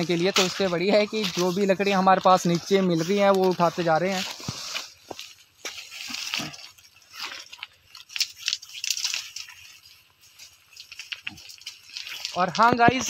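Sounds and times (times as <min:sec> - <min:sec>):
dry leaves and twigs crunching: 0:00.0 - 0:13.0.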